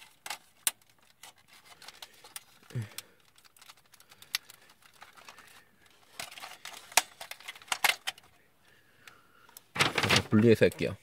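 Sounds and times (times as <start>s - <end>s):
plastic toy parts clicking and rattling: 0.0s - 8.4s.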